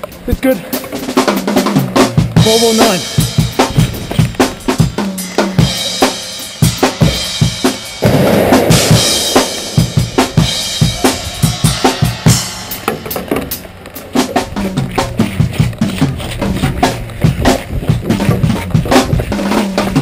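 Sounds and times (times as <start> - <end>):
music with heavy drum beat: 0.0 - 20.0
burst of noise: 7.7 - 14.6.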